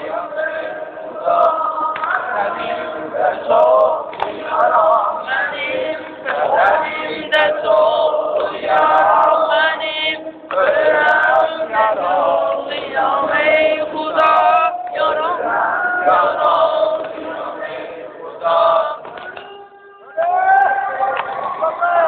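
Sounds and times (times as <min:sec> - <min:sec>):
many voices chanting: 0:00.0 - 0:22.0.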